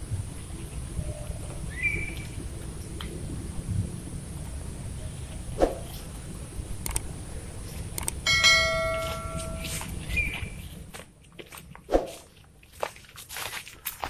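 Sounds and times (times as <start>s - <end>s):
outdoor ambience: 0.0s - 14.0s
bird chirp: 0.4s - 2.4s, 9.0s - 10.7s
mouse clicks: 6.8s - 7.0s
notification bell ding: 8.3s - 9.9s.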